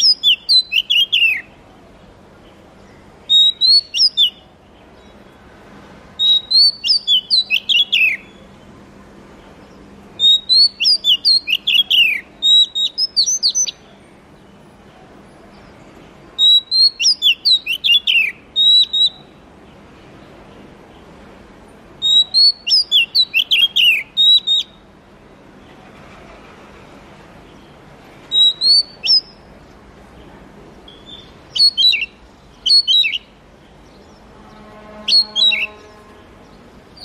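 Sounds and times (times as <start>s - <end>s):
bird singing whistled notes: 0.0s - 1.5s, 2.9s - 5.2s, 6.2s - 8.5s, 9.6s - 13.9s, 16.4s - 19.4s, 22.0s - 24.9s, 28.3s - 29.5s, 30.9s - 37.0s.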